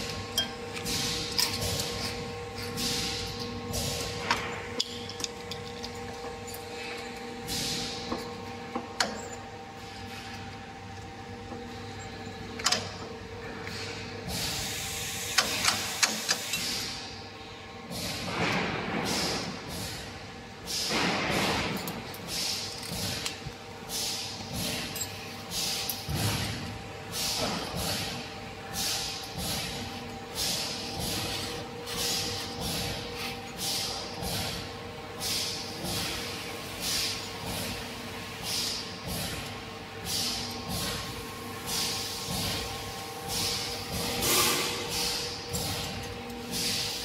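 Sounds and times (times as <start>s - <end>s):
factory machinery hum: 0.0s - 47.0s.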